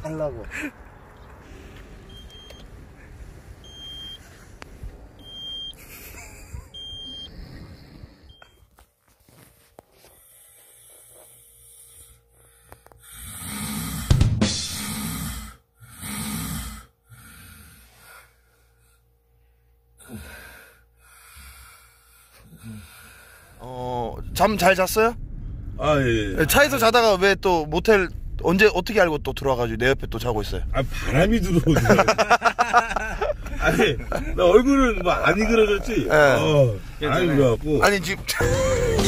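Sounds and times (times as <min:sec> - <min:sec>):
loud snoring: 0:13.1 - 0:17.8.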